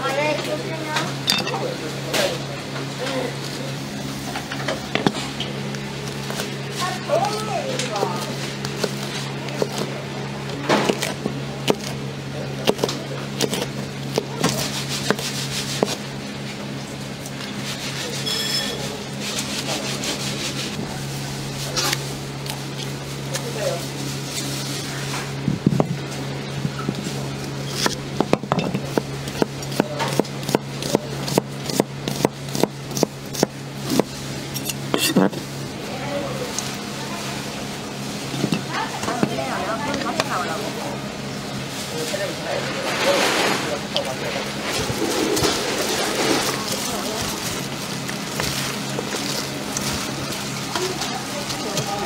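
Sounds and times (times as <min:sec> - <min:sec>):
knife chopping on plastic board: 0:10.7 - 0:12.0, 0:12.6 - 0:16.0, 0:27.8 - 0:34.1.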